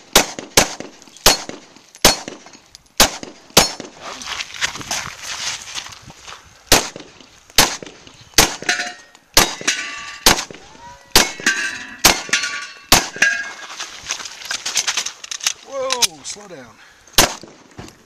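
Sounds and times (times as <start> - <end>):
pistol shots: 0.0 - 4.0, 6.7 - 13.4, 17.2 - 17.7
steel plate target clanging: 8.6 - 10.3, 11.2 - 13.8.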